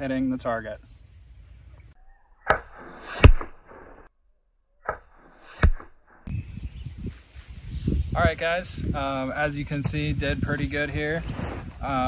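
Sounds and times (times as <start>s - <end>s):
crossbow shot snap: 2.4s - 4.1s, 4.8s - 6.0s
arrow striking bag target: 2.5s - 4.1s, 4.8s - 6.2s.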